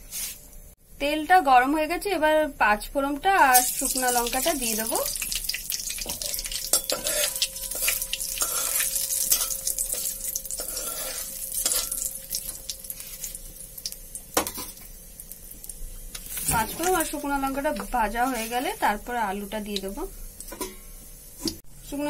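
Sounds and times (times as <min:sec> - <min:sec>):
seeds sizzling in hot oil: 0:03.4 - 0:21.6
metal spatula stirring pan: 0:03.6 - 0:13.5.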